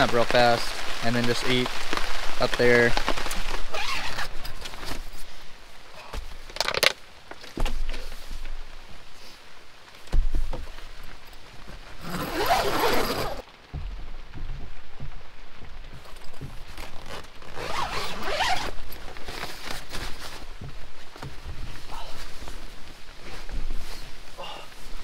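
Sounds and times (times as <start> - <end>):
fabric rustling: 1.9 - 25.0
zipper pulled: 3.7 - 5.0, 12.0 - 13.4, 16.7 - 20.4
soft low thumps: 10.1 - 25.0.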